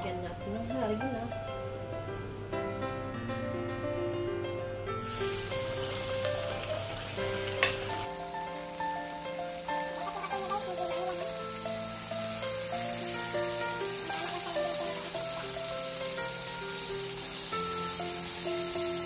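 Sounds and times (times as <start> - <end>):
gentle background music: 0.0 - 19.0
fish sizzling in hot oil: 5.0 - 19.0.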